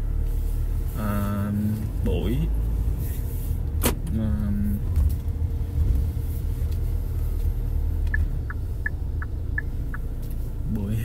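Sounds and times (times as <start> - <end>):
car road and engine rumble: 0.0 - 11.0
light regular ticking: 6.6 - 11.0.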